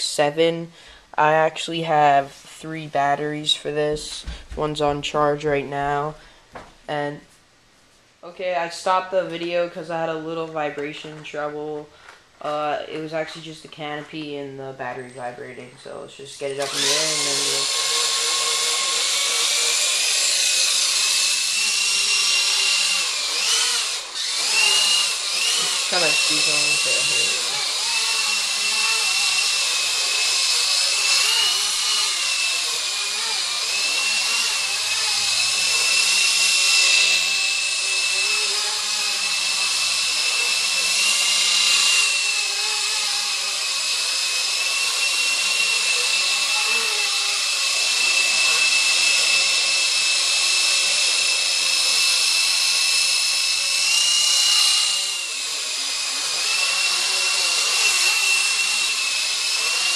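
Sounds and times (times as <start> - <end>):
rc helicopter motor whine: 16.4 - 59.9
rotor blades hissing: 16.6 - 59.9.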